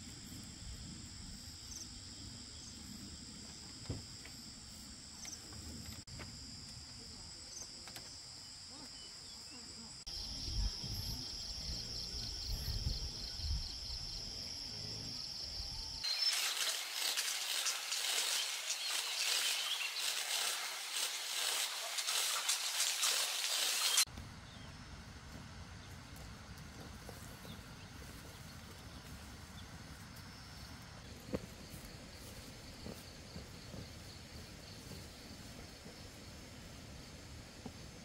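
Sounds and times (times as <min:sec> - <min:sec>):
insects chirring: 0:00.0 - 0:38.0
loud even hiss: 0:16.0 - 0:24.1.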